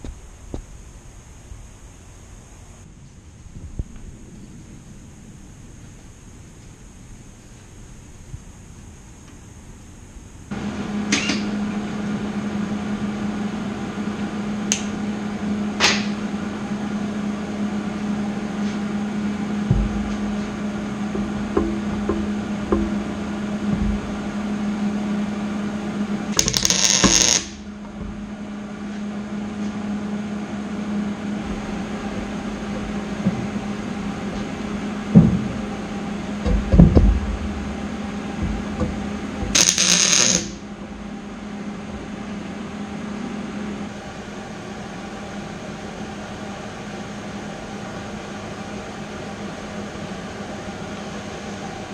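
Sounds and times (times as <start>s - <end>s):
welding arc crackle and hiss: 0.0s - 11.6s, 15.8s - 16.2s, 26.2s - 28.2s, 31.4s - 40.7s
steady machine hum: 0.0s - 51.9s
dull knocks of steel tubing: 21.2s - 23.1s.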